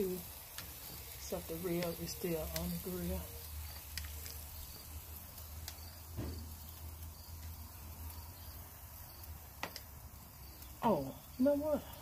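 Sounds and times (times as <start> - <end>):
faint steady hiss: 0.0 - 12.0
metal utensil clicking on grill grate: 0.4 - 5.9.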